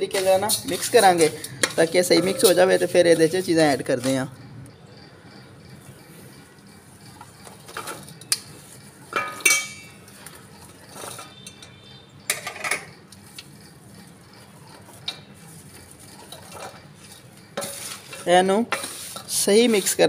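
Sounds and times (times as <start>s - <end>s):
metal bowl ringing: 9.2s - 10.0s.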